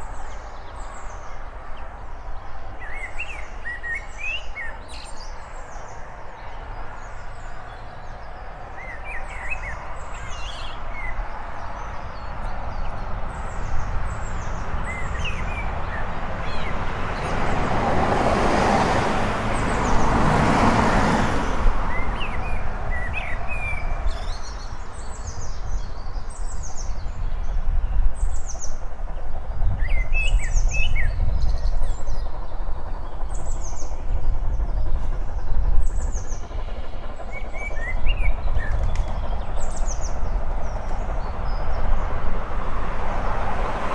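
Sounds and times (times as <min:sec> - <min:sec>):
birds chirping and singing: 0:00.0 - 0:17.7, 0:29.6 - 0:42.0
distant steam locomotive rumble: 0:00.0 - 0:43.9.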